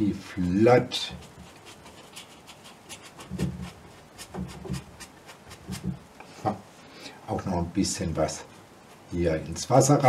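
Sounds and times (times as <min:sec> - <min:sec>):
paintbrush scrubbing on canvas: 0:00.8 - 0:06.0, 0:08.2 - 0:09.8.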